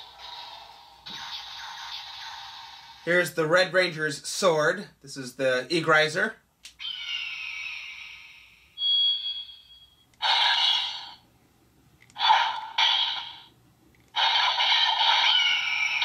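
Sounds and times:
toy sword electronic sound effects: 0:00.0 - 0:03.0, 0:06.8 - 0:08.6, 0:10.2 - 0:11.2, 0:12.2 - 0:13.5, 0:14.2 - 0:16.0.

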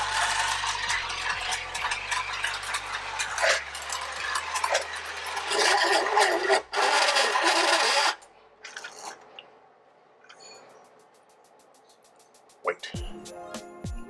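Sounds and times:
gears rattling: 0:00.0 - 0:09.4
toy train motor whirring: 0:00.0 - 0:09.4.

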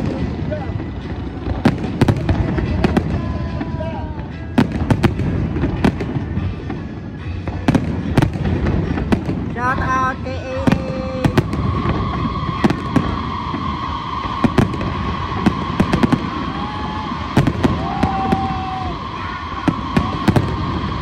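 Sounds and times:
fireworks shells bursting: 0:00.0 - 0:21.0
rumbling crackle: 0:00.0 - 0:21.0
steady high tone: 0:10.1 - 0:21.0.

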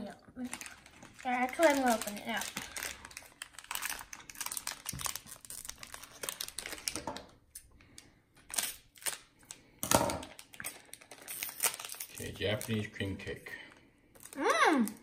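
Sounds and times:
plastic wrapper crinkling: 0:00.4 - 0:15.0.

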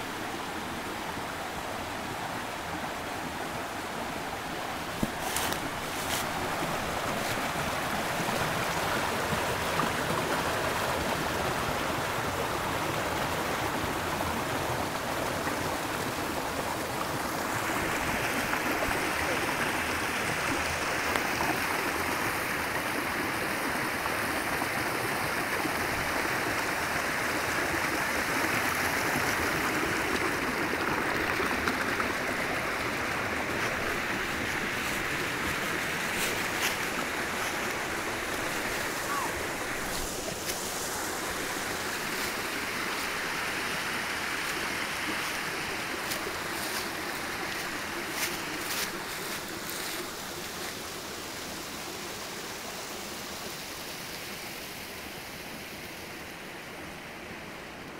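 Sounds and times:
water rushing over boulders: 0:00.0 - 0:57.9.

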